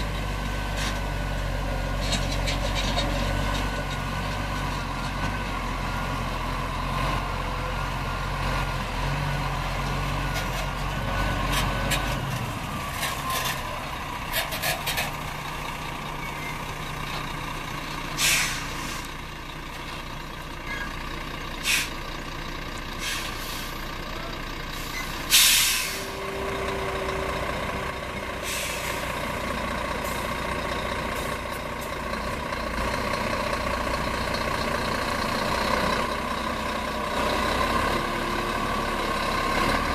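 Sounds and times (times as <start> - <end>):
diesel truck engine running: 0.0 - 39.9
air brake hisses: 18.2 - 19.1, 21.6 - 22.0, 23.0 - 23.8, 24.8 - 26.2, 28.4 - 29.1.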